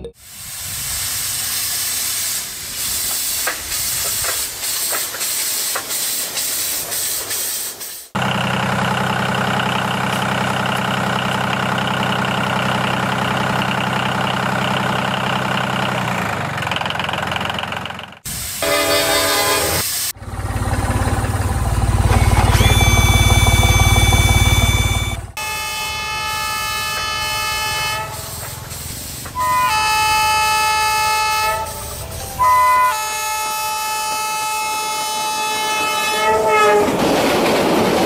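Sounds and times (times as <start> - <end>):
steady hiss: 0.2 - 8.1, 28.2 - 29.4
mechanical drone: 20.2 - 26.1.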